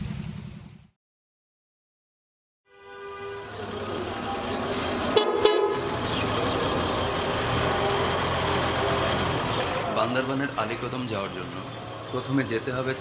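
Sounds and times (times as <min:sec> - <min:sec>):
vehicle horns tooting: 0:02.7 - 0:10.5
vehicle engines rumbling: 0:03.3 - 0:13.0.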